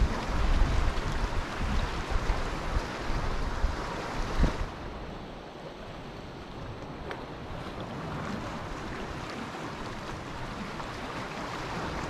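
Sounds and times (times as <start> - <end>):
wind buffeting microphone: 0.0 - 5.3
waves washing in: 0.0 - 12.0.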